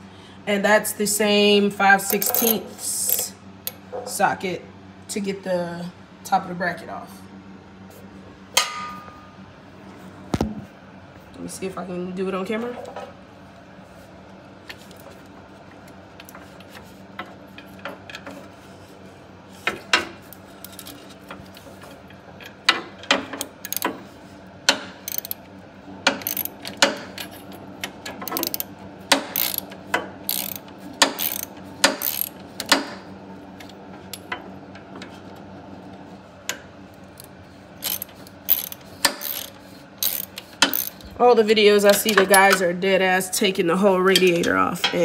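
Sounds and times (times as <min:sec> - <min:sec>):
hand ratchet clicking: 0:23.1 - 0:23.9, 0:25.0 - 0:25.4, 0:26.1 - 0:27.3, 0:28.2 - 0:32.8, 0:37.2 - 0:41.0.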